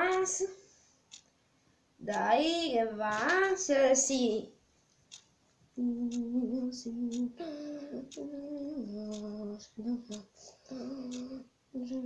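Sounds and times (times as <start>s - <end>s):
person humming: 5.8s - 12.0s.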